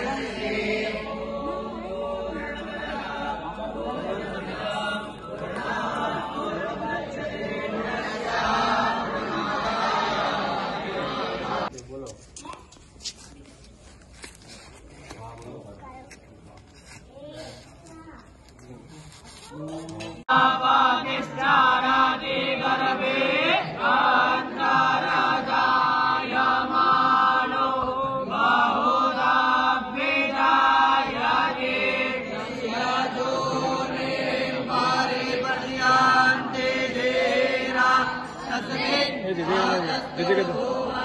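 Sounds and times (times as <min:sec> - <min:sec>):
group chanting in unison: 0:00.0 - 0:11.7, 0:20.2 - 0:41.0.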